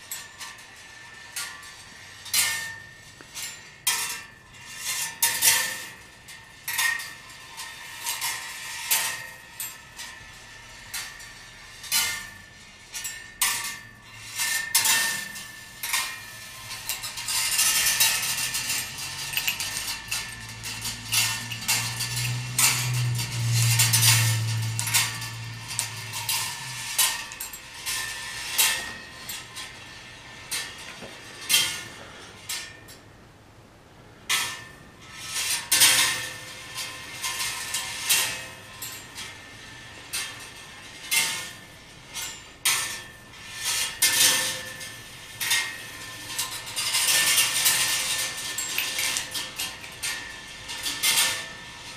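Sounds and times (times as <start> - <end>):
metallic clicks and clinks: 0.0 - 33.1, 34.3 - 51.7
balls rolling on wire rails: 0.0 - 51.9
low steady hum: 15.3 - 43.6.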